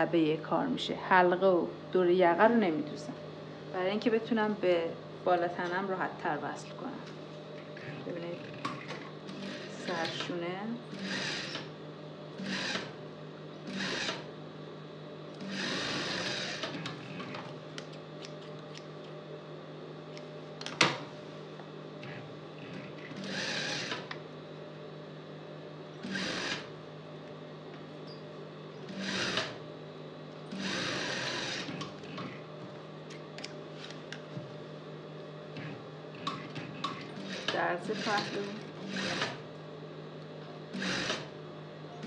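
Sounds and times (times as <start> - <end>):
sewing machine stitching: 10.9 - 11.7, 13.7 - 14.2, 15.4 - 17.5, 22.0 - 24.1, 26.0 - 26.7, 28.9 - 29.6, 30.5 - 32.4, 35.6 - 39.4, 40.7 - 41.3.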